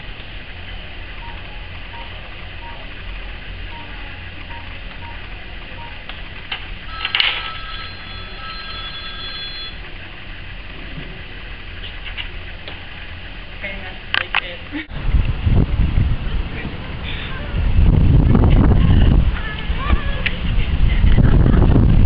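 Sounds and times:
faint short beeps: 6.9 - 9.8
ringing bell-like tone: 6.9 - 9.8.

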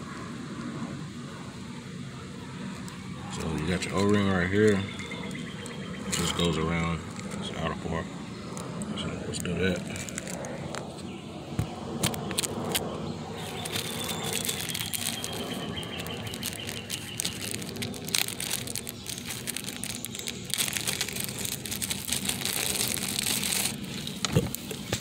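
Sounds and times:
rustling and crinkling: 8.6 - 25.0.

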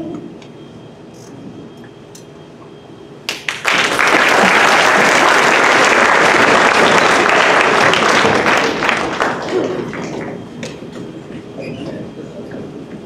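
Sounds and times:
audience applauding: 3.3 - 10.4.

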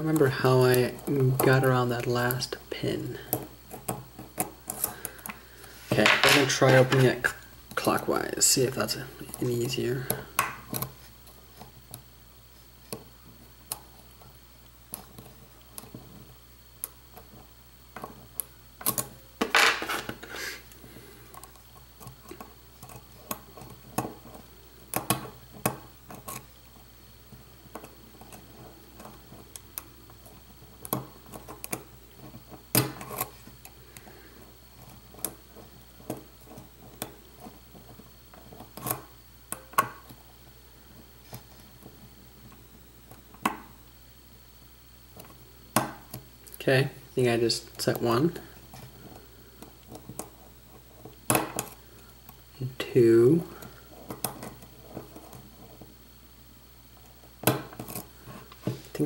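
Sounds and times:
rustling scrape: 5.6 - 7.2, 19.7 - 20.7.

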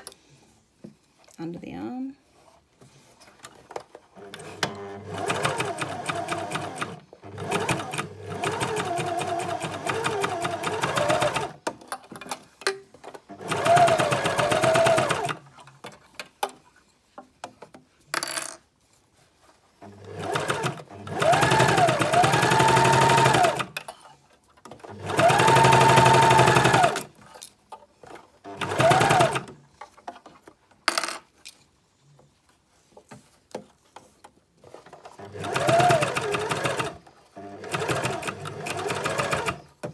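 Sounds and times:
sewing machine motor whine: 25.0 - 27.0.

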